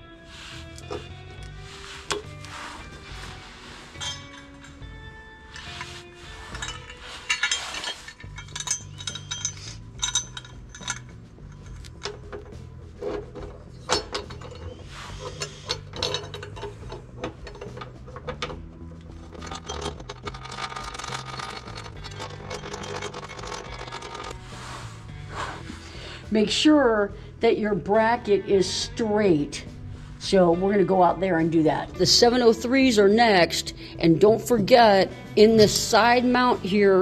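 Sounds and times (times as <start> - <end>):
background music with bass: 0.0 - 37.0
metal tools clinking: 0.4 - 24.4.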